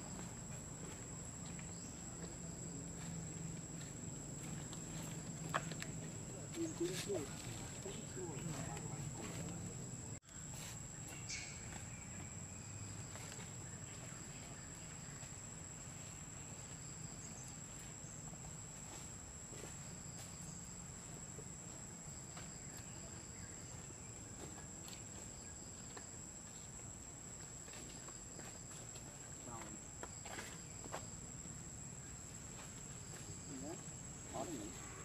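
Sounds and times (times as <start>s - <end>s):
insect high-pitched drone: 29.4s - 35.0s.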